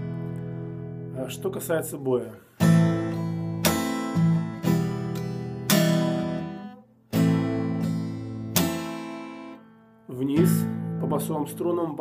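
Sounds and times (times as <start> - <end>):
acoustic guitar strumming: 0.0 - 1.8, 2.4 - 12.0.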